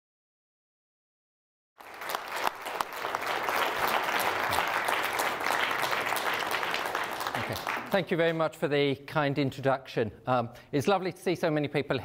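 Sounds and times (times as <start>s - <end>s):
audience applauding: 1.8s - 8.4s.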